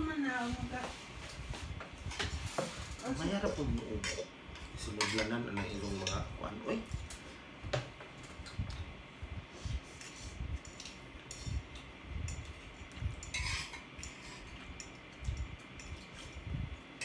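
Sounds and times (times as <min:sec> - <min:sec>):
utensils clinking against plate: 0:02.2 - 0:07.2, 0:10.0 - 0:16.4.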